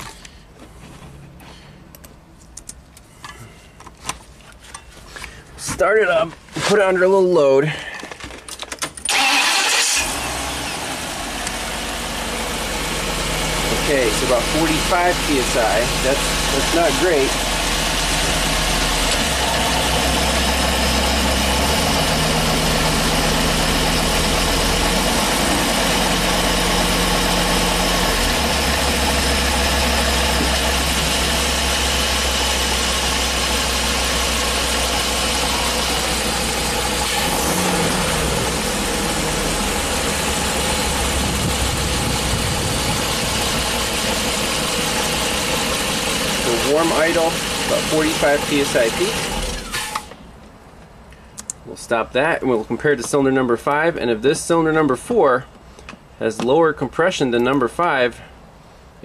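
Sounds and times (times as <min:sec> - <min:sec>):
engine idling: 0:09.1 - 0:50.2.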